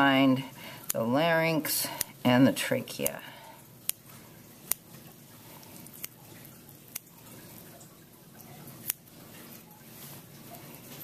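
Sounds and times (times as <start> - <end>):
wet squishing of tissue: 3.5 - 11.0.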